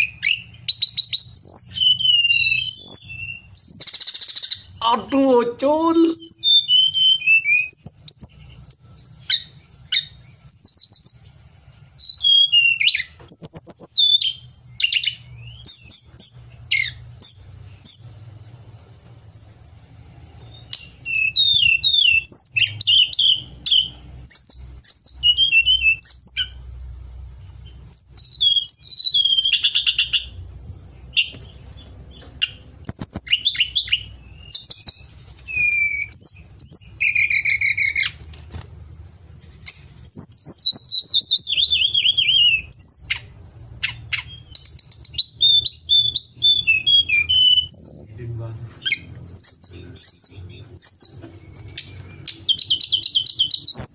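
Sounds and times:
bird singing whistled phrases: 0:00.0 - 0:11.3, 0:12.0 - 0:18.1, 0:20.5 - 0:26.6, 0:28.0 - 0:38.2, 0:39.7 - 0:53.9.

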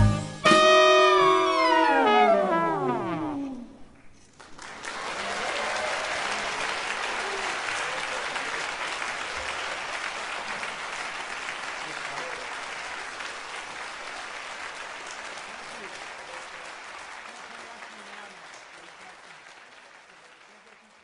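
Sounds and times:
jazz band chord: 0:00.0 - 0:03.8
audience applause: 0:04.3 - 0:21.0.

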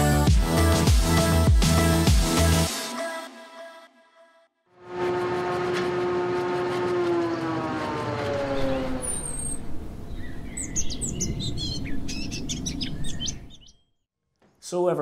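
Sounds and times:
birds chirping: 0:07.1 - 0:14.0.

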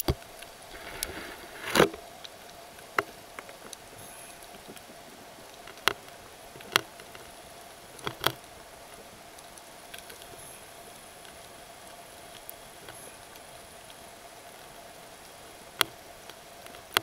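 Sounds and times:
underwater hiss: 0:03.9 - 0:04.8, 0:10.0 - 0:15.6.

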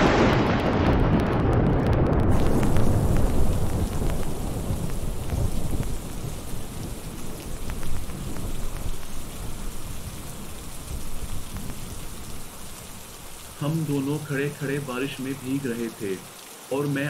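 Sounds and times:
thunder rolling: 0:00.0 - 0:12.3
steady rain: 0:00.0 - 0:17.0.

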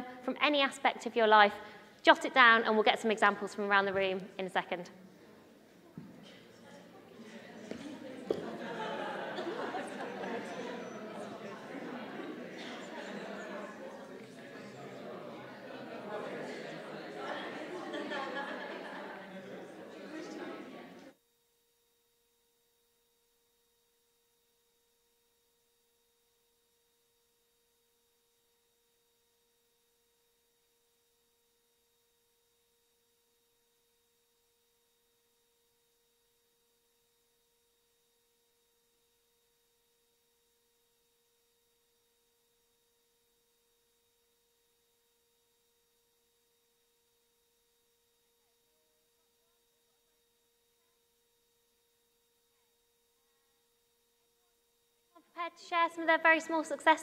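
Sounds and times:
faint electronic tone: 0:07.7 - 0:17.1.

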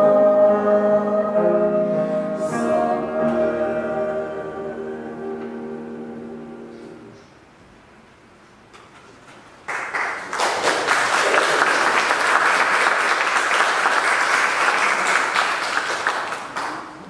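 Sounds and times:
congregation applauding: 0:09.6 - 0:17.0.

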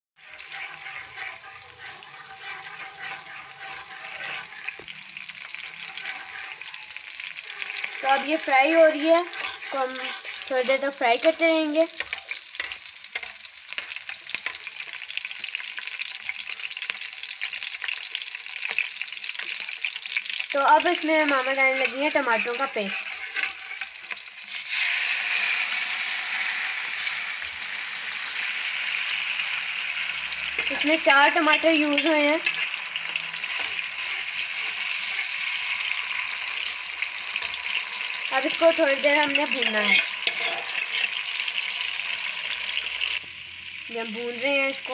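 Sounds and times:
metal spatula stirring: 0:00.2 - 0:26.1, 0:29.0 - 0:43.2
oil sizzling in a wok: 0:00.2 - 0:44.9.

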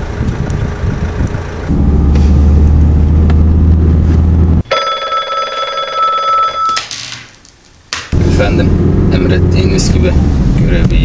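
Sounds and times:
car engine rumble: 0:00.0 - 0:04.8, 0:07.8 - 0:11.0
telephone ringing: 0:04.6 - 0:06.9.

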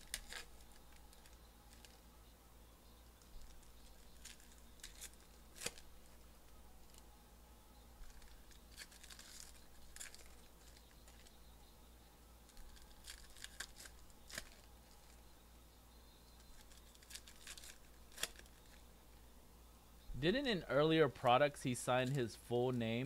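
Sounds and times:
foil wrappers tearing and crinkling: 0:00.0 - 0:02.0, 0:03.2 - 0:05.9, 0:08.0 - 0:11.3, 0:12.5 - 0:15.2, 0:16.4 - 0:18.8.

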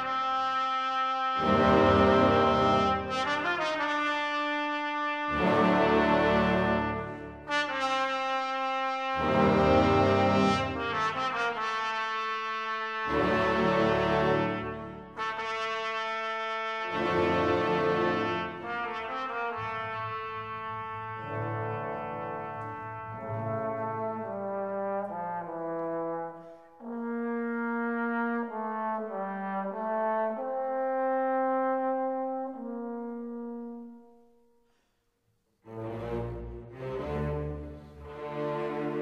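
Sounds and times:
slow brass chords: 0:00.0 - 0:34.3.

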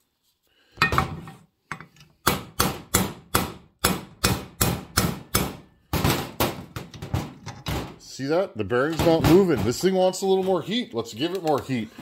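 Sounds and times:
hammer tapping metal: 0:02.2 - 0:05.7.

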